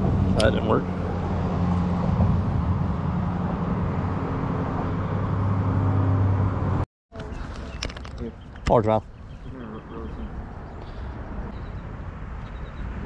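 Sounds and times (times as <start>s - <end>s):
low engine drone: 0.0s - 7.9s
road traffic hum: 0.0s - 13.0s.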